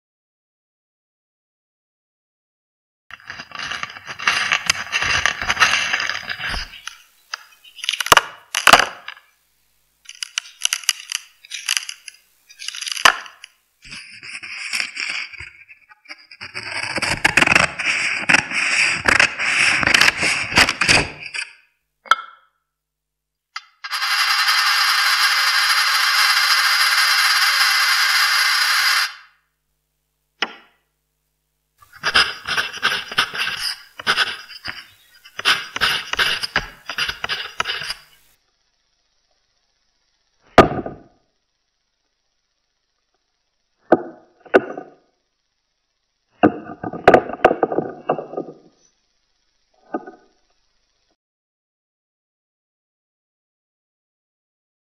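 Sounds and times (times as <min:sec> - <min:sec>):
scraping and clicking: 0:03.1 - 0:09.3, 0:10.0 - 0:21.6, 0:31.8 - 0:38.4
steady rubbing noise: 0:03.1 - 0:21.4, 0:31.8 - 0:51.1
scissors snipping paper: 0:10.1 - 0:15.5, 0:32.0 - 0:38.2.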